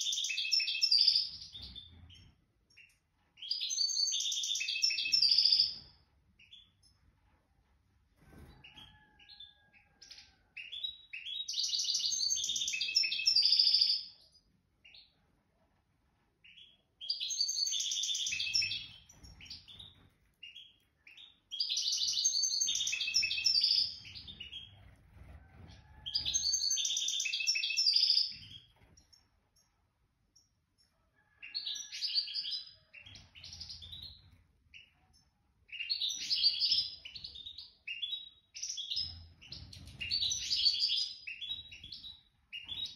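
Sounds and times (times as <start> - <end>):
bird singing: 0.0 - 1.9, 2.7 - 5.8, 8.9 - 14.2, 16.4 - 24.7, 26.3 - 28.7.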